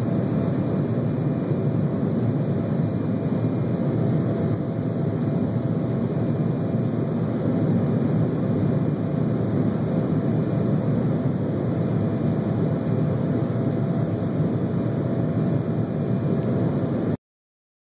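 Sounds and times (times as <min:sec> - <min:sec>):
faint steady whine: 0:00.0 - 0:17.2
jet engine cabin rumble: 0:00.0 - 0:17.2.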